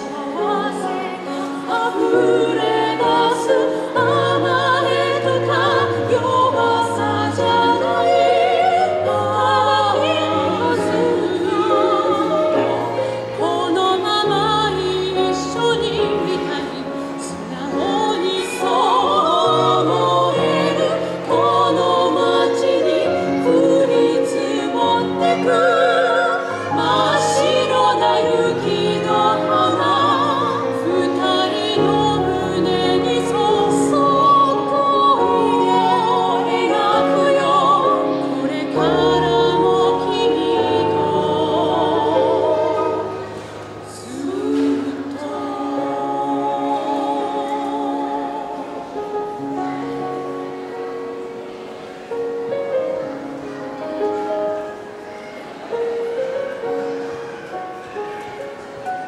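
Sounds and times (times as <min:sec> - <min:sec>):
women singing in close harmony: 0:00.0 - 0:50.4.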